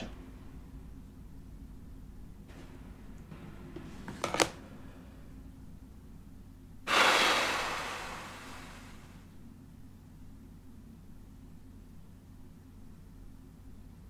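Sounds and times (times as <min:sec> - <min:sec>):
person blowing out breath: 0:06.9 - 0:09.1.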